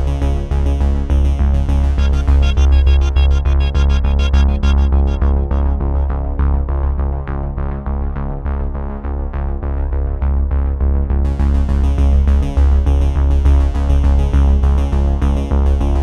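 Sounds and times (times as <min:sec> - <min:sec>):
electronic music with heavy bass: 0:00.0 - 0:07.3.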